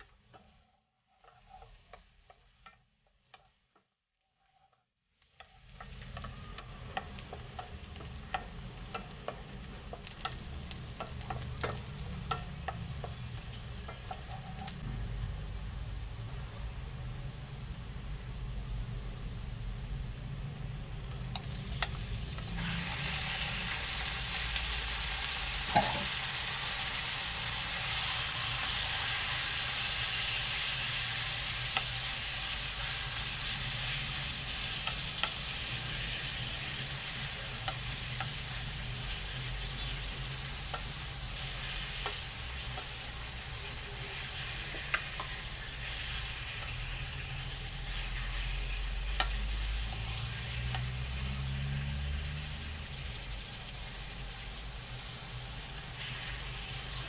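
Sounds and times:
wooden spoon tapping and scraping pan: 0:00.0 - 0:14.9, 0:25.6 - 0:26.2, 0:33.7 - 0:36.4, 0:37.0 - 0:43.7, 0:44.6 - 0:48.2, 0:49.0 - 0:51.3
meat sizzling in hot oil: 0:05.1 - 0:57.0.

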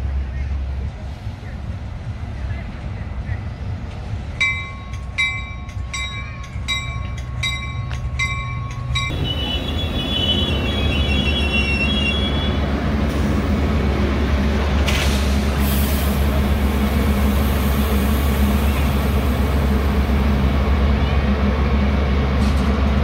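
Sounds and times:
train rumbling: 0:00.0 - 0:23.0
brakes squealing: 0:08.8 - 0:13.4.

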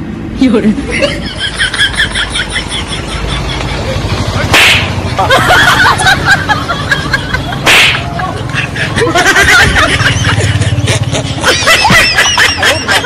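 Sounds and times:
whip cracks: 0:04.5 - 0:05.0, 0:07.6 - 0:08.1.

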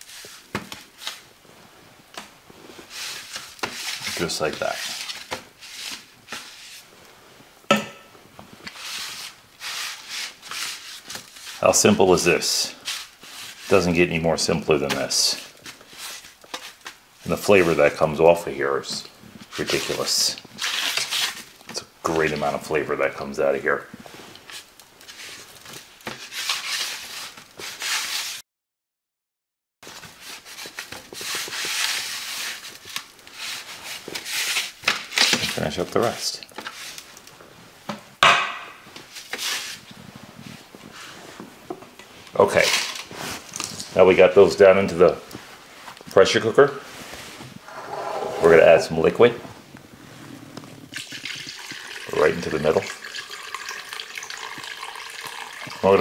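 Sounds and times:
hands rubbing spice into meat: 0:08.7 - 0:11.6
scraping on sheet pan: 0:47.6 - 0:48.8.

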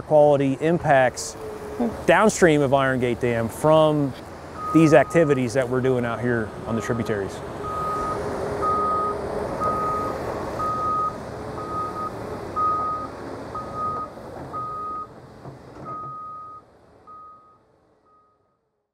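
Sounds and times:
backup alarm beeping: 0:06.8 - 0:15.1.

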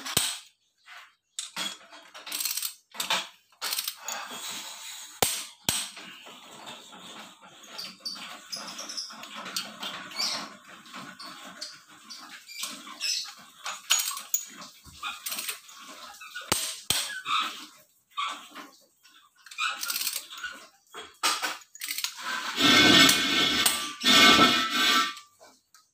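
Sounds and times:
torque wrench ratcheting rattle: 0:02.3 - 0:02.8, 0:03.6 - 0:04.3, 0:19.5 - 0:20.3, 0:21.6 - 0:22.2.

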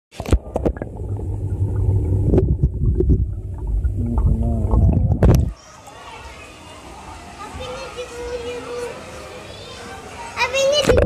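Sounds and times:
muffled low rumbling: 0:00.4 - 0:05.5
muffled wavering tone: 0:00.7 - 0:05.5.

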